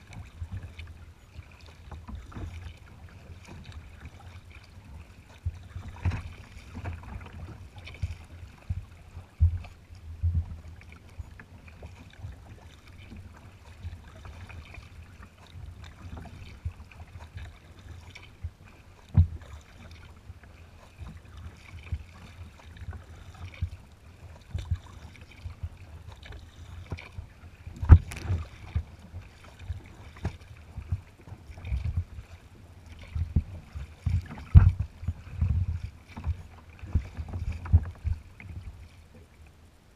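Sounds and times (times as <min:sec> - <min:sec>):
water slapping against kayak hull: 0:00.0 - 0:39.4
steady water wash: 0:00.0 - 0:39.9
sharp knock on hull: 0:27.8 - 0:28.4.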